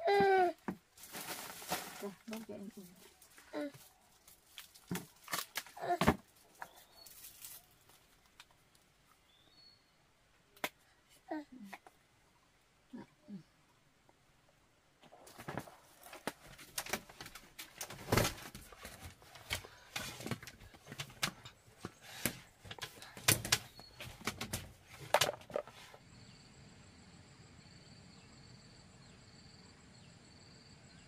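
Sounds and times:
knocks and rustles of handling: 0.1 - 8.9, 15.0 - 26.0.

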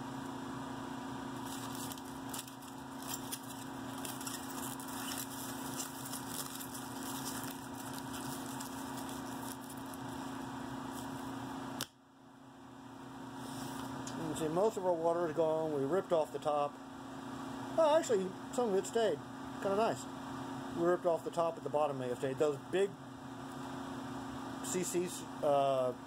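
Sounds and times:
steady hum: 0.0 - 26.0
aluminium foil crinkling: 1.4 - 11.3.

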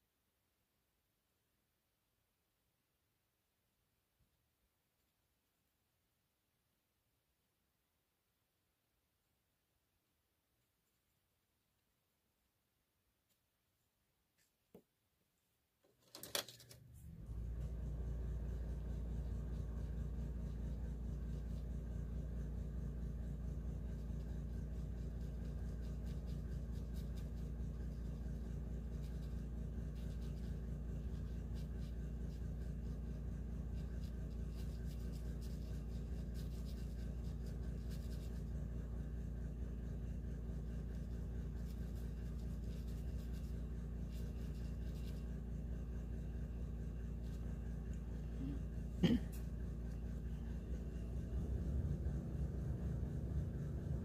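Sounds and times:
steady low hum: 16.8 - 54.0
pencil scratching on paper: 17.6 - 48.8.

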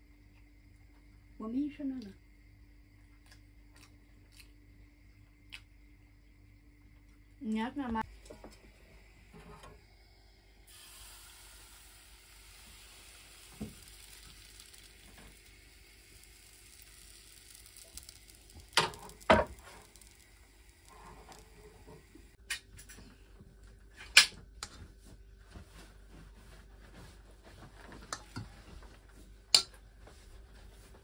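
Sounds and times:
batter sizzling in frying pan: 9.0 - 22.4.

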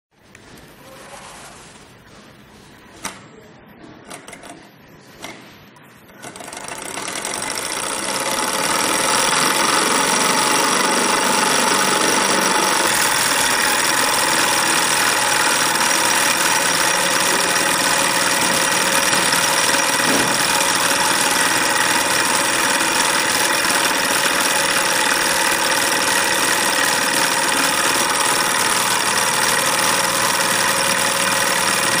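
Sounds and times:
flywheel clicks: 6.1 - 32.0
small engine running fast: 6.5 - 32.0.

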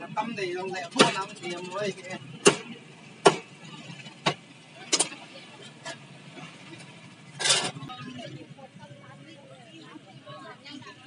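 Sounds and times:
cleaver chopping on wooden block: 2.4 - 3.4.

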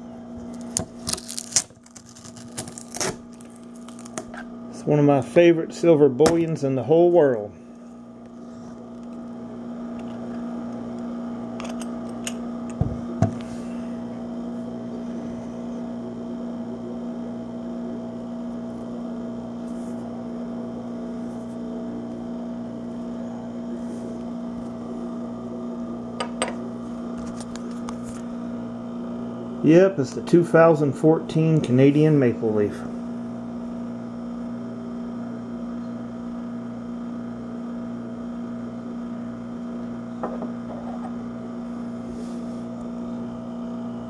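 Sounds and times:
electrical hum: 0.0 - 44.0
coin set down on wooden table: 40.2 - 41.1.

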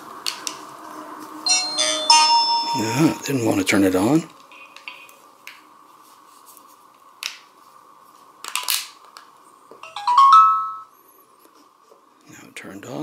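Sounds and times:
rising beeps power-on chime: 1.5 - 3.2.

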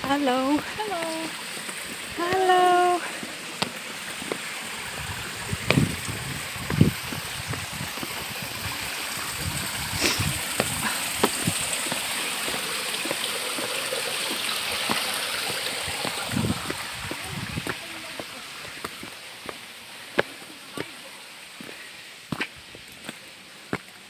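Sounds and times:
stream running over rocks: 0.0 - 24.0
low thumps and knocks: 5.5 - 8.3.

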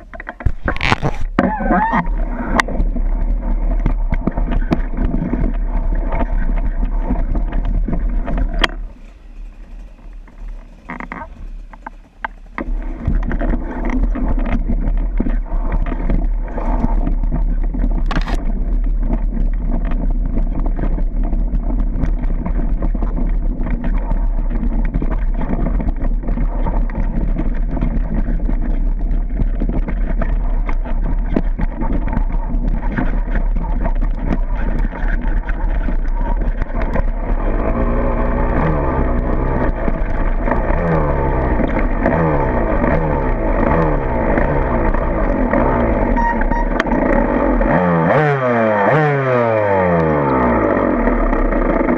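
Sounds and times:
knocks and rattles: 0.0 - 47.2
dirt bike engine revving: 29.3 - 51.9.

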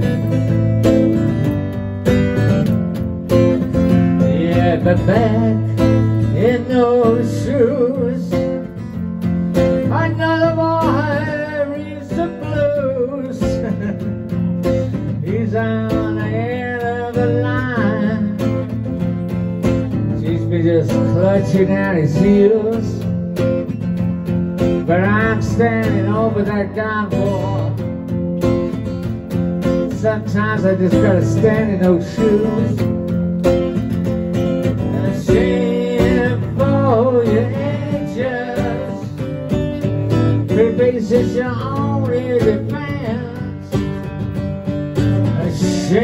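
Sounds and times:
strummed acoustic guitar: 0.0 - 46.0
man singing: 3.6 - 19.3, 19.9 - 23.4, 24.8 - 28.1, 29.6 - 33.2, 34.6 - 44.2, 45.0 - 46.0.

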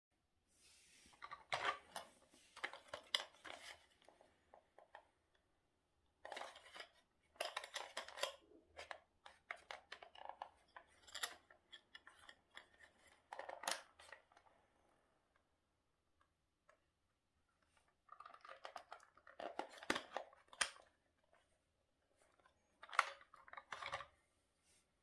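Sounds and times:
plastic toy casing clicks and rattles: 6.2 - 12.8, 18.1 - 21.0.

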